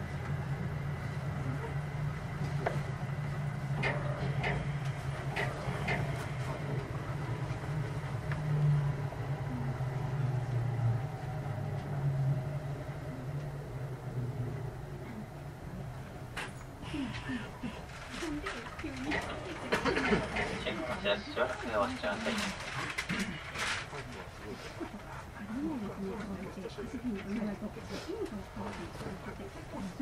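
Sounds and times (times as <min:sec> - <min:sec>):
train wheels and motors rumbling: 0:00.0 - 0:30.0.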